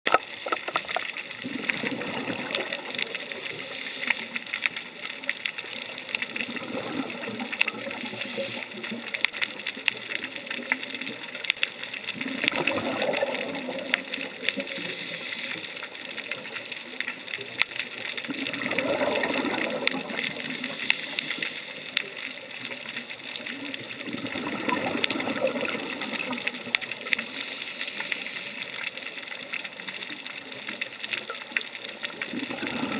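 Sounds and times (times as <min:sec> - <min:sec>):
regulator bubbles rushing: 0:00.1 - 0:03.8, 0:05.8 - 0:09.1, 0:12.0 - 0:15.2, 0:18.2 - 0:20.8, 0:23.6 - 0:27.4, 0:32.0 - 0:32.9
dense crackle of sharp clicks: 0:00.1 - 0:32.9.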